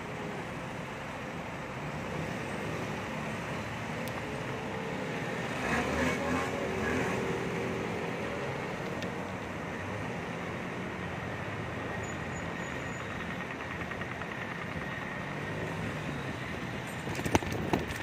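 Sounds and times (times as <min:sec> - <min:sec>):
road noise rushing: 0:00.0 - 0:18.0
vehicle passing: 0:04.8 - 0:08.8.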